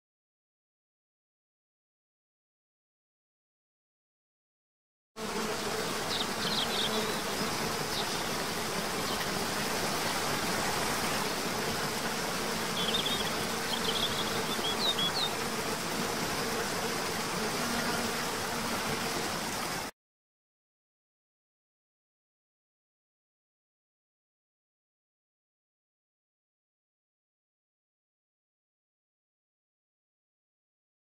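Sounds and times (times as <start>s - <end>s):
faint insect hum: 5.2s - 19.9s
water rushing: 7.4s - 17.6s, 18.2s - 19.9s.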